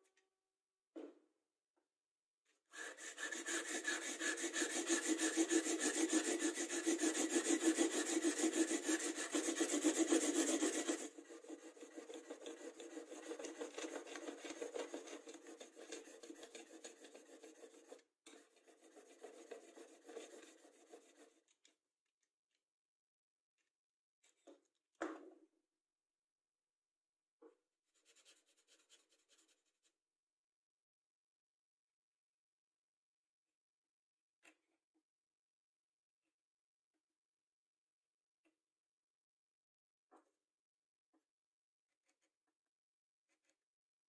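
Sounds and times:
chisel scraping on sandpaper: 2.8s - 21.4s.

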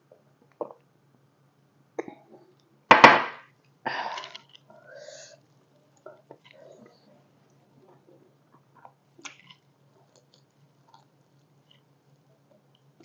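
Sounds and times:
mouth and eating clicks: 8.8s - 11.9s.

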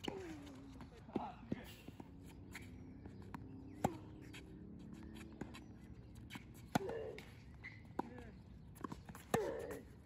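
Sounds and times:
tennis ball bouncing on court: 0.0s - 9.9s
tennis ball struck by rackets: 3.4s - 4.1s, 6.3s - 8.2s.

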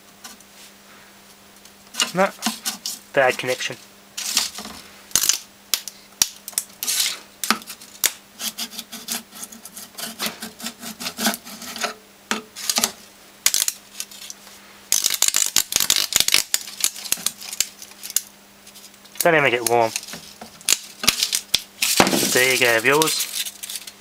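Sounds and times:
electrical arcing crackles: 1.9s - 8.2s, 12.6s - 24.0s.

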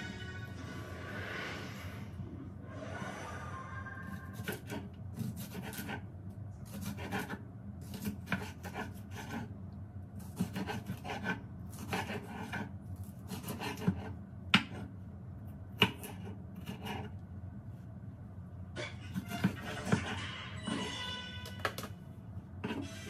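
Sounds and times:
knife slicing pepper on board: 6.7s - 9.5s, 10.2s - 12.7s.

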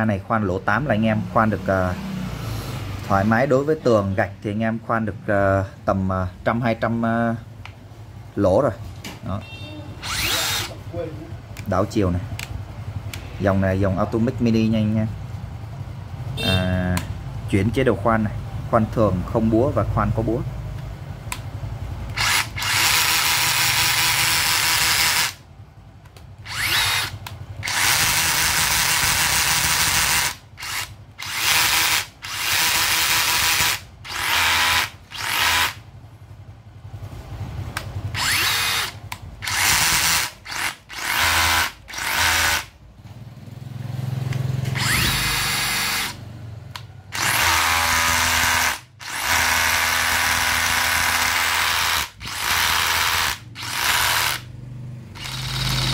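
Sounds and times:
rotary hammer running unloaded: 22.1s - 25.4s, 26.4s - 35.8s, 37.7s - 42.7s, 44.3s - 54.5s, 55.2s - 55.9s.

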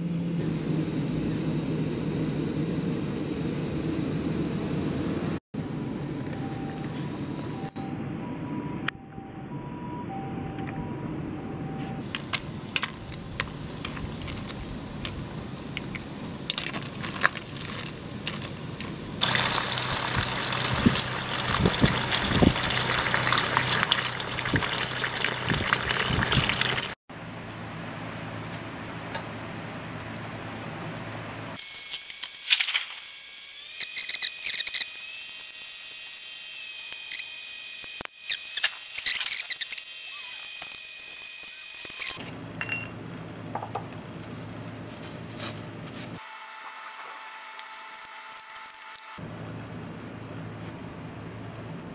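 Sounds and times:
pot boiling and bubbling: 16.6s - 27.0s
tap water pouring into pot: 19.2s - 27.0s.

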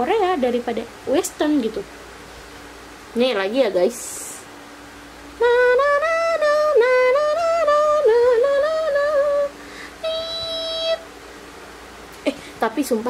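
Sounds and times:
woman singing wordless tune: 5.4s - 11.1s.

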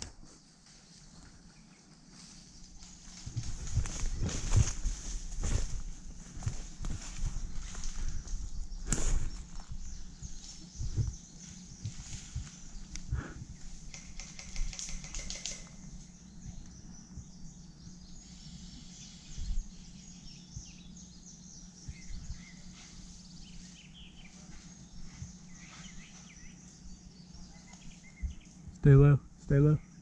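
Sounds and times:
birds chirping: 0.8s - 30.0s.

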